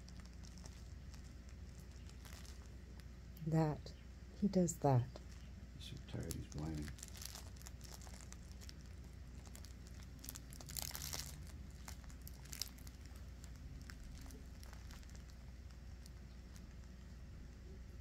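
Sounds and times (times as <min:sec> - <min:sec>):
fabric rustling and crinkling: 0:00.0 - 0:03.1, 0:06.2 - 0:16.9.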